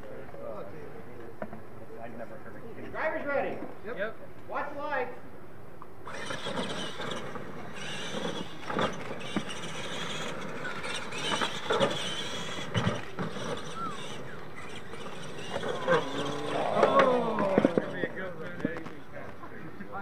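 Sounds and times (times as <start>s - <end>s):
electric toy truck motors whining: 6.0s - 19.5s.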